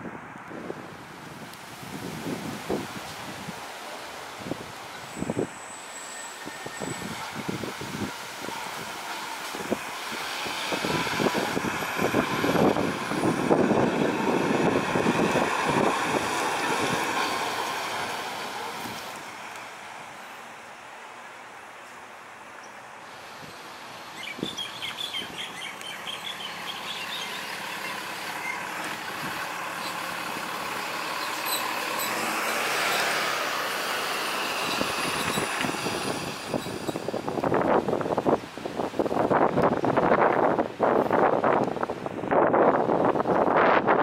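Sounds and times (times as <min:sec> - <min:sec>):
fire engine driving past: 0:00.0 - 0:44.0
box truck passing: 0:05.0 - 0:20.2, 0:26.3 - 0:38.3
birds chirping: 0:24.0 - 0:28.7.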